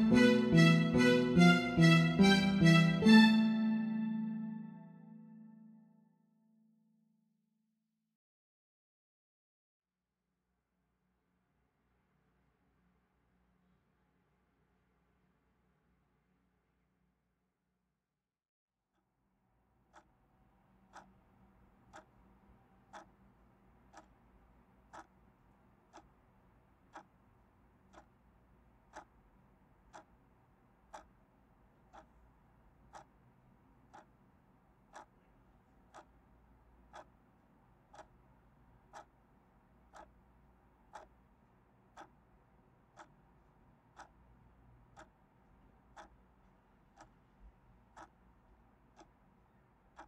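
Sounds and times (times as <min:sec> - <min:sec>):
clock ticking: 0:00.0 - 0:05.8, 0:20.8 - 0:21.2, 0:21.8 - 0:23.2, 0:23.8 - 0:26.3, 0:26.9 - 0:27.2, 0:27.8 - 0:50.0.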